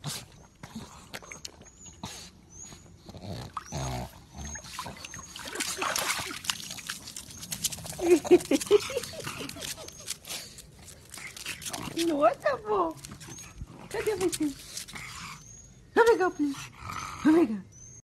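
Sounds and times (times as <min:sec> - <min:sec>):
dog grunt: 0:03.1 - 0:05.2
water splashing: 0:04.5 - 0:10.3
dog snuffling: 0:04.7 - 0:15.2.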